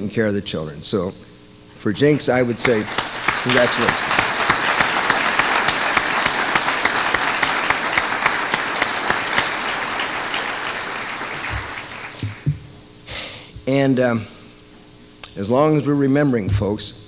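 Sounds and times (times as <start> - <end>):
audience applauding: 2.2 - 12.5.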